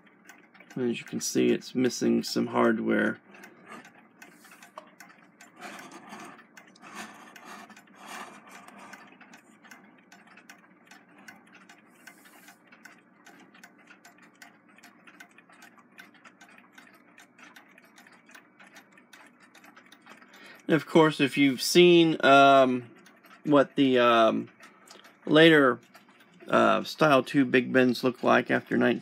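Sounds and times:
alarm clocks ticking: 0.0 - 29.0.

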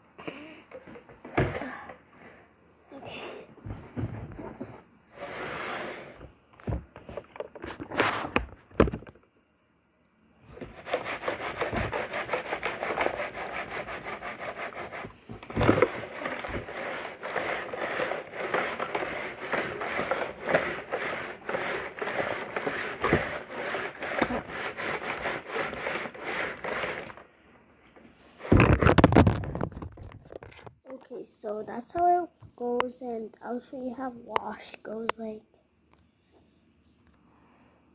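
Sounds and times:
washing machine churning: 10.5 - 27.2.

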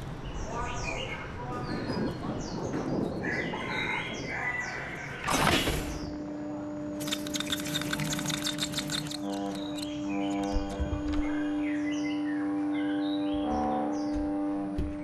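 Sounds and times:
steady low hum: 5.6 - 15.0
rapid crackling ticks: 7.0 - 10.0.

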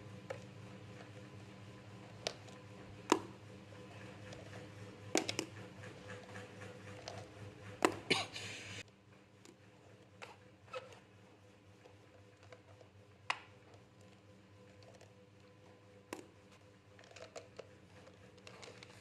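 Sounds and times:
low steady hum: 0.0 - 19.0
marker clicks and taps: 3.1 - 3.3, 5.2 - 5.5.

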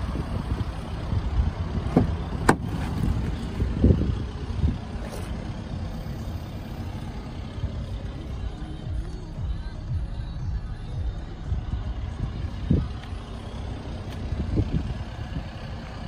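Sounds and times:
steady low rumble: 0.0 - 16.0
dull thumps of car door: 1.9 - 3.0.

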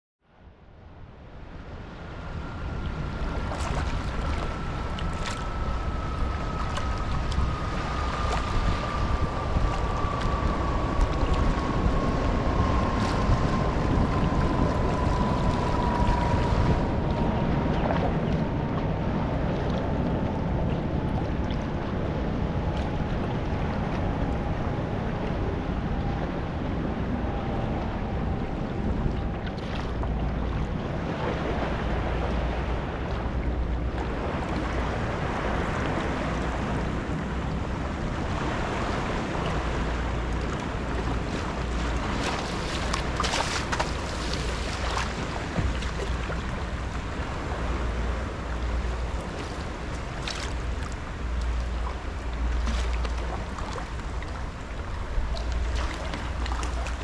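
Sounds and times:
wind buffeting microphone: 0.7 - 57.0
water sloshing and lapping: 1.7 - 57.0
paddle splashes: 2.9 - 18.8, 29.4 - 57.0.

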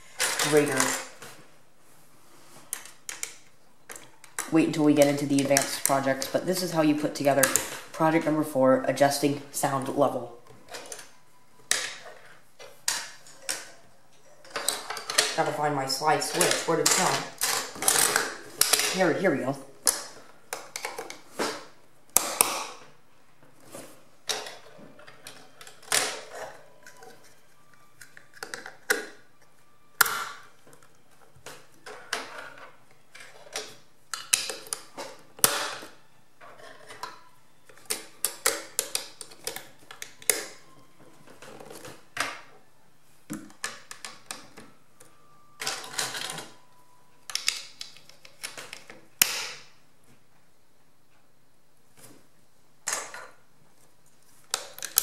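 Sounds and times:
plastic parts clattering: 0.0 - 1.3, 10.1 - 13.8, 14.4 - 22.9, 23.7 - 42.5, 43.3 - 46.7, 47.3 - 49.7
plastic pieces snapping together: 33.2 - 35.9, 36.9 - 40.8, 47.3 - 49.7, 54.4 - 55.0.

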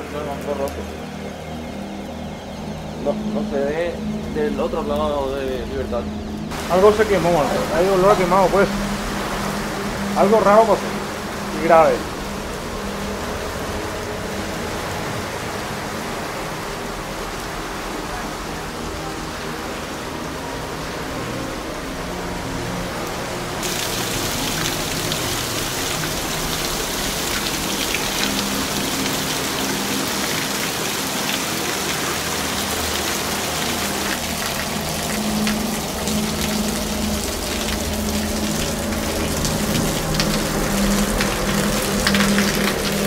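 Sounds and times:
heavy rain on paving: 0.0 - 2.3, 2.9 - 43.0
drops splashing into puddles: 23.6 - 43.0.

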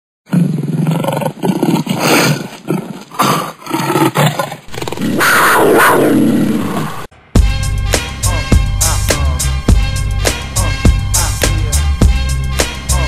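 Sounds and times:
big cat growling and snarling: 0.3 - 7.1
big cat roaring: 0.3 - 7.1.

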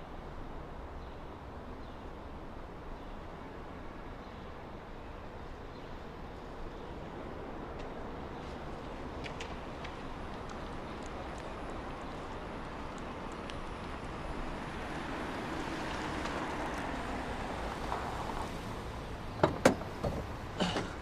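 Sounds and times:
car tyres and running gear: 6.9 - 21.0
car door opening clunk: 19.4 - 21.0.

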